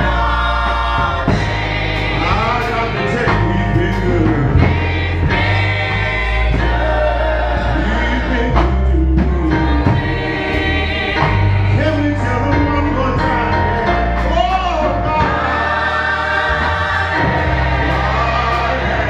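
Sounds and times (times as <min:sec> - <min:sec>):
keyboard accompaniment: 0:00.0 - 0:19.0
sustained bass notes: 0:00.0 - 0:19.0.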